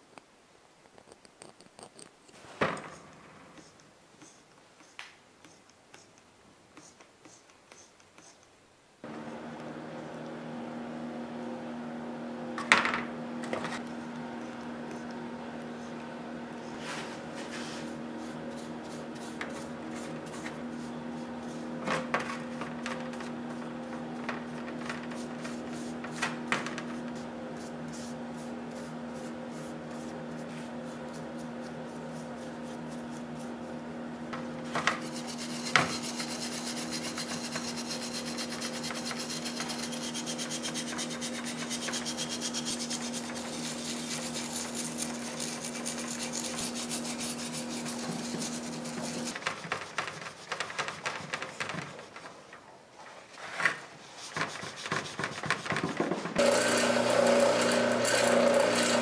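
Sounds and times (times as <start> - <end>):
brush scrubbing metal: 16.6 - 33.8, 34.6 - 52.2, 54.0 - 55.8.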